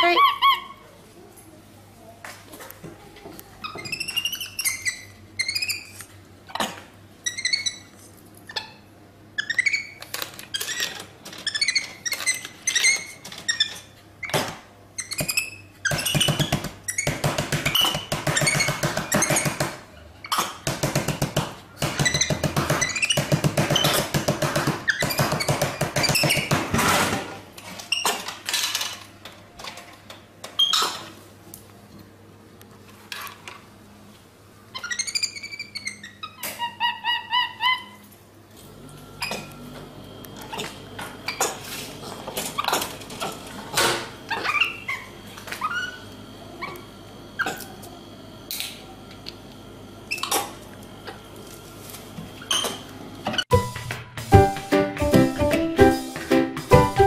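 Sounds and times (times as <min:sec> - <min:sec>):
monkey chirping calls: 0:34.8 - 0:38.0.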